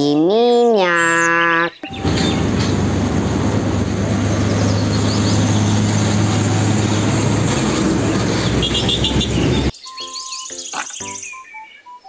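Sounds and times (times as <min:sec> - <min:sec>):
diesel truck driving past: 0:01.9 - 0:09.7.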